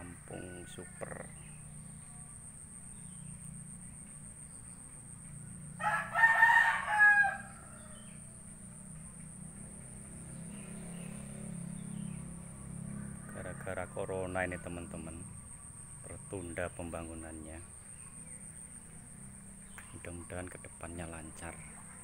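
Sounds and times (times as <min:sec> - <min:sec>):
rooster crowing: 0:00.1 - 0:02.1, 0:05.8 - 0:08.5, 0:12.8 - 0:15.3.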